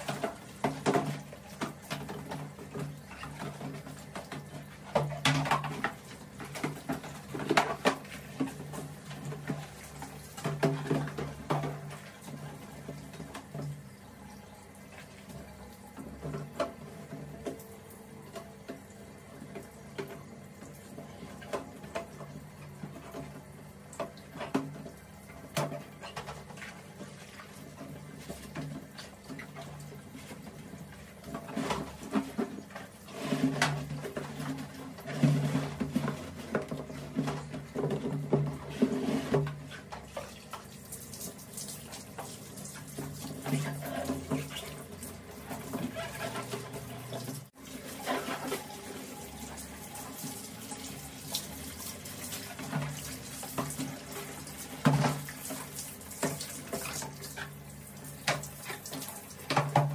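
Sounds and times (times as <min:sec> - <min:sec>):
hard plastic knocking and clattering: 0:00.0 - 0:09.7
scrubbing and rubbing: 0:26.0 - 0:59.9.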